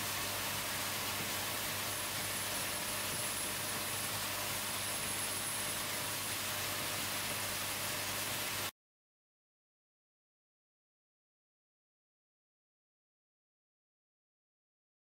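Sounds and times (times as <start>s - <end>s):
faint high whine: 0.0s - 7.6s
steady hiss: 0.0s - 8.7s.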